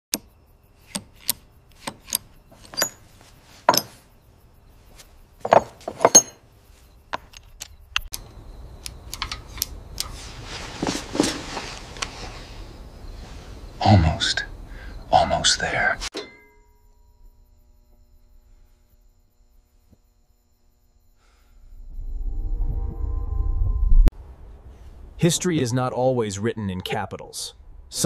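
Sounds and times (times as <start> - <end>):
metal tools clinking: 2.0 - 4.0, 5.4 - 6.4.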